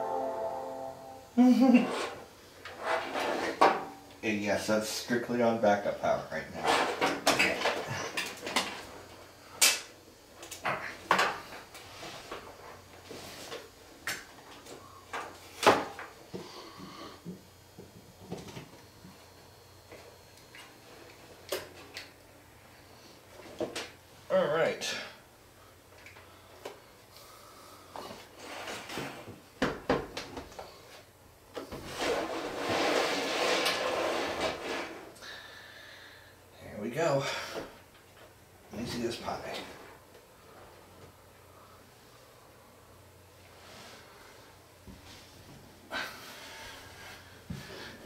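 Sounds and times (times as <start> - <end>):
plastic case scraping and rubbing: 2.8 - 3.6, 31.9 - 35.1.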